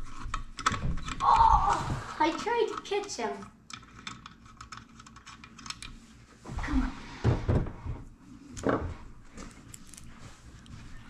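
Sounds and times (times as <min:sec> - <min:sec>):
screwdriver and metal parts clicking: 0:02.6 - 0:05.9, 0:09.6 - 0:10.1.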